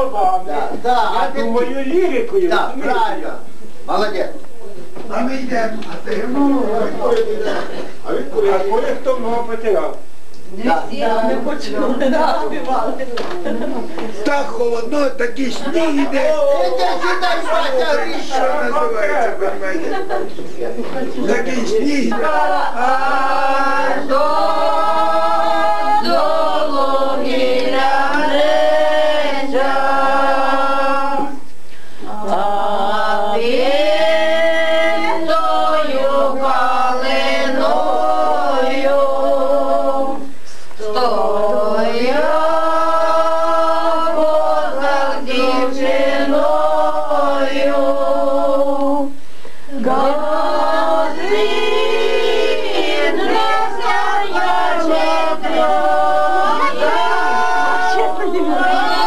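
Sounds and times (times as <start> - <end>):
several voices singing: 21.2 - 59.0.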